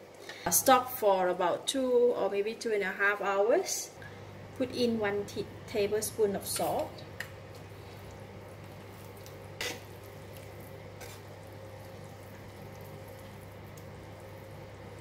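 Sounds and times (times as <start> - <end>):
steady low hum: 3.9 - 15.0
liquid swishing: 7.8 - 15.0.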